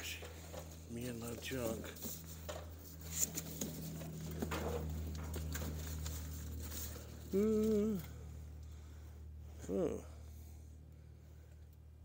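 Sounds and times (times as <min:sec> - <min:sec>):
paper rustling: 0:00.0 - 0:08.0
steady low hum: 0:00.0 - 0:12.0.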